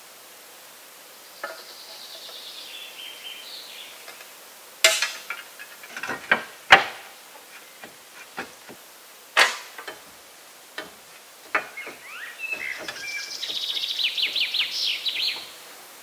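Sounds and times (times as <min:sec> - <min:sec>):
songbird singing a trill: 0:01.2 - 0:04.2, 0:11.5 - 0:15.7
sharp wooden knocks: 0:04.8 - 0:08.8, 0:09.4 - 0:10.1, 0:10.8 - 0:14.6.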